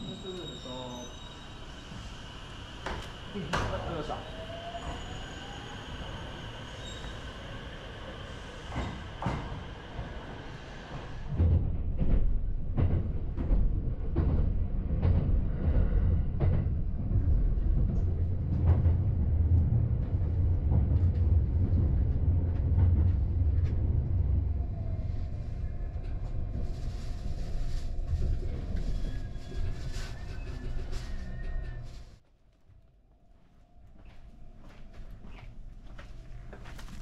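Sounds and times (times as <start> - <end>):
electric train whine and hum: 0.0 - 12.2
train rumble: 0.0 - 32.2.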